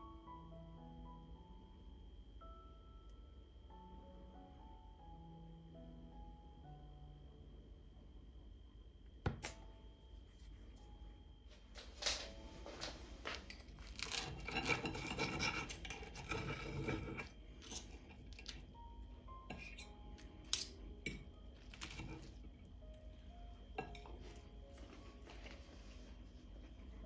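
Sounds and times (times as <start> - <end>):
fork scraping through crisp tortilla: 13.8 - 18.6.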